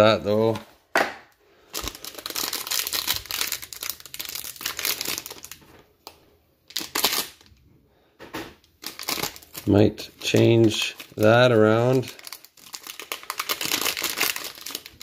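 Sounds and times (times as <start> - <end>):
foil wrapper crinkling: 1.6 - 5.8, 6.7 - 7.6, 8.8 - 15.0.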